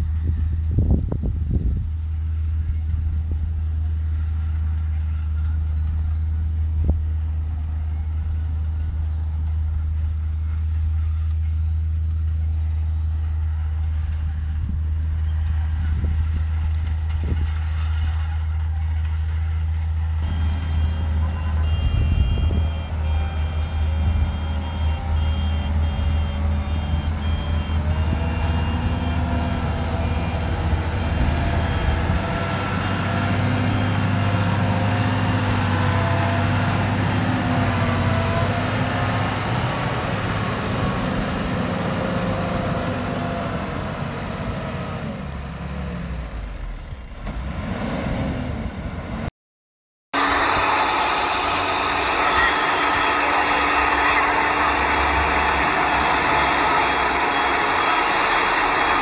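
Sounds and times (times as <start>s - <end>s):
bulldozer diesel engine: 0.0s - 49.3s, 50.2s - 59.0s
truck engine: 0.0s - 49.3s, 50.2s - 59.0s
reversing beeper: 20.1s - 43.4s, 50.2s - 59.0s.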